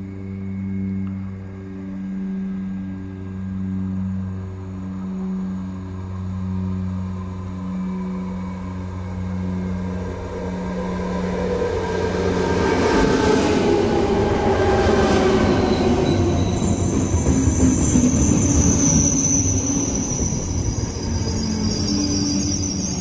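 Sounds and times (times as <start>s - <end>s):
electric train whine: 0.0s - 23.0s
high brake squeal: 15.0s - 23.0s.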